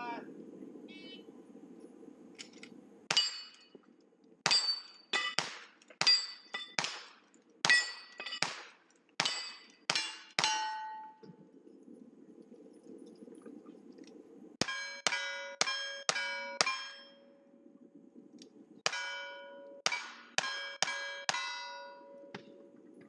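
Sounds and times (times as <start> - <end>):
steel plate ringing: 4.5 - 6.8, 7.7 - 8.5, 9.2 - 11.2, 14.6 - 17.4, 18.9 - 22.4
rifle shots: 6.8 - 9.5.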